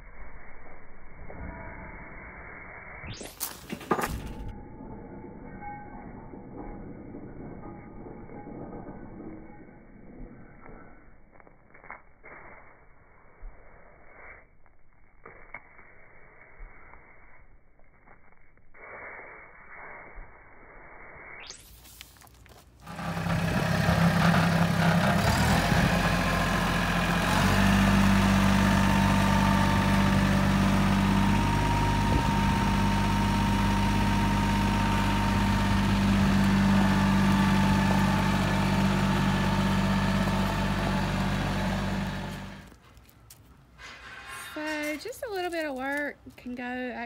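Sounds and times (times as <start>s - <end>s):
tyres on gravel: 21.6s - 46.6s
tractor engine running: 22.8s - 42.8s.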